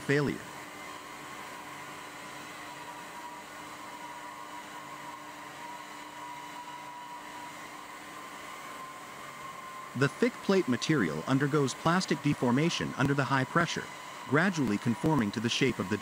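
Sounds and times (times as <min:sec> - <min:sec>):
hydraulic press humming: 0:00.0 - 0:16.0.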